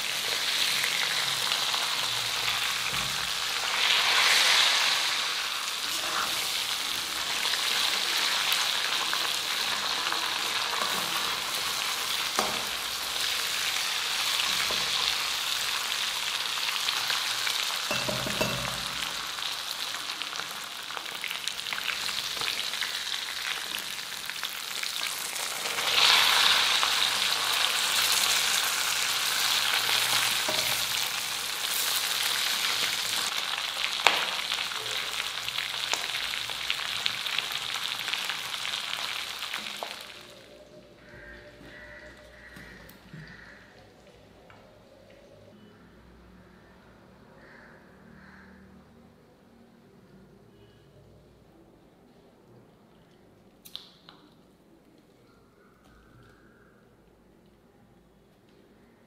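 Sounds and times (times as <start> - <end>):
chicken sizzling in hot oil: 0.0 - 42.6
metal ladle knocking pan: 17.9 - 19.2.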